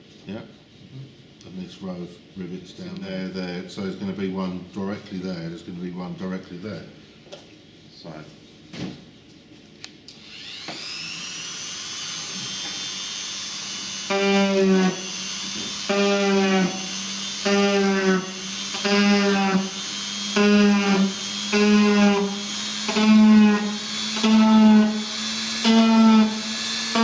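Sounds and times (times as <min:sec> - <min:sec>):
rotary tool high whine: 0:10.1 - 0:27.0
rotary tool bit buzzing: 0:10.2 - 0:27.0.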